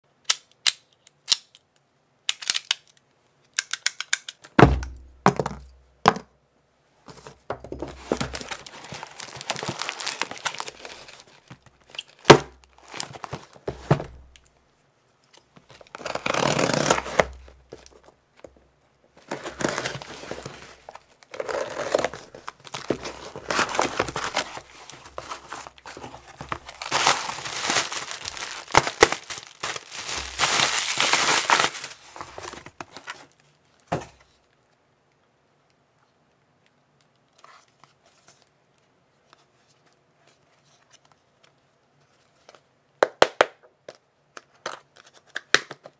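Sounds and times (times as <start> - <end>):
packaging crinkling and tearing: 8.0 - 14.4, 15.7 - 18.1, 19.2 - 33.5.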